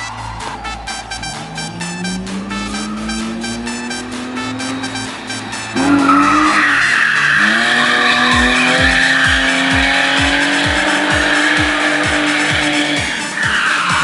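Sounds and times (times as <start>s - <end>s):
car engine revving: 0.0s - 14.0s
tyres squealing: 0.7s - 14.0s.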